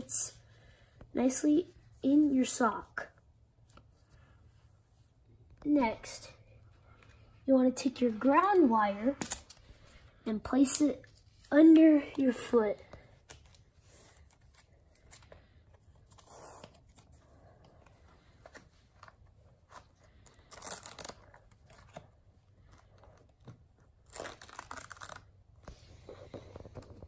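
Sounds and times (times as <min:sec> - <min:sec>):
velcro ripping: 0:20.1 - 0:22.1, 0:23.2 - 0:25.6.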